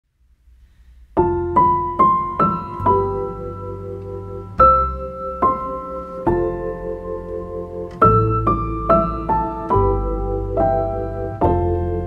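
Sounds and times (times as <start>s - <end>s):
slow piano melody: 0.6s - 12.0s.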